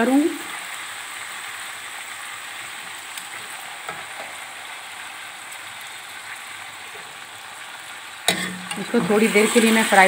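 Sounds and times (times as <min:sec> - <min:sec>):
chicken sizzling in hot oil: 0:00.0 - 0:10.0.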